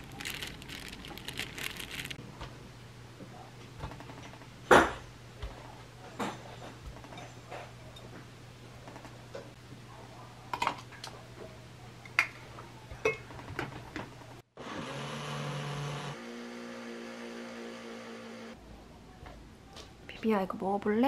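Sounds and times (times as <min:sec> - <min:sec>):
blender motor running: 0:14.6 - 0:18.6.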